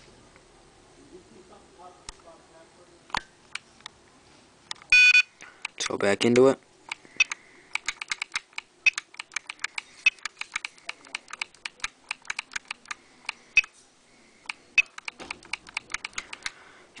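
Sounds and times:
trigger and button clicking: 6.9 - 13.7, 14.4 - 16.6.

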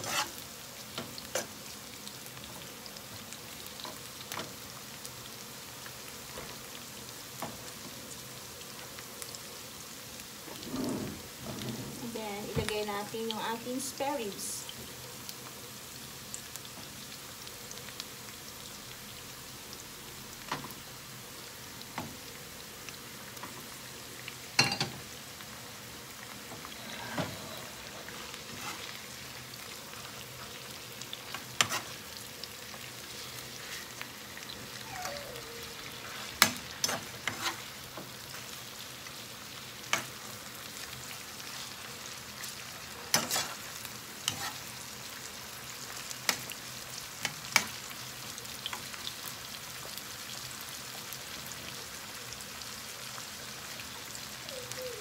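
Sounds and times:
utensil scraping a pan: 0.0 - 0.4, 10.6 - 12.1, 26.6 - 29.2, 31.5 - 32.0, 36.0 - 37.7, 43.1 - 44.7
ribs sizzling in a pan: 0.0 - 55.0.

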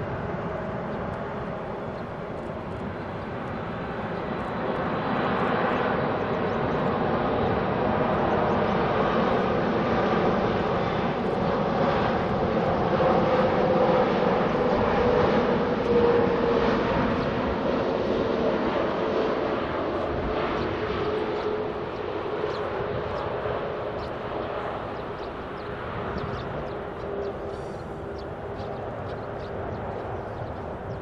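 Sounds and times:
droning engine tone: 10.4 - 31.0.

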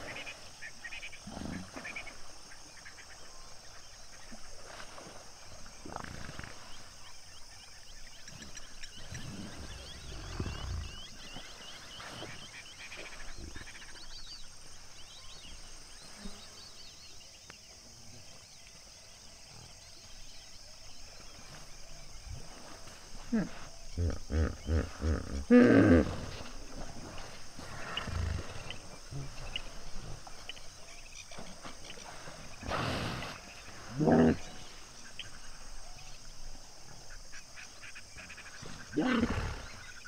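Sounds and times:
hippos grunting and honking: 8.3 - 12.5, 22.4 - 35.0, 37.7 - 40.0.

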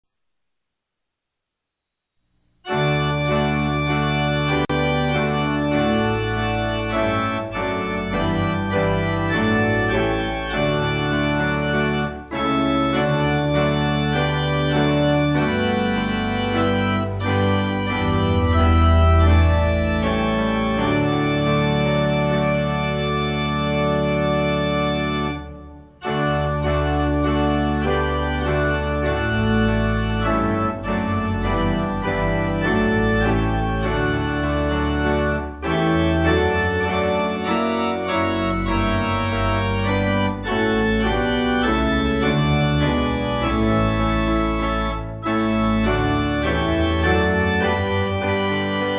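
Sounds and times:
organ playing hymn chords: 2.6 - 48.9.

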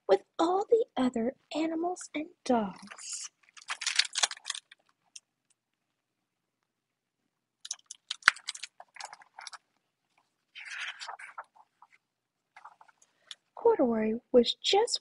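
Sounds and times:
book pages rustling: 2.8 - 5.2, 7.7 - 13.4.

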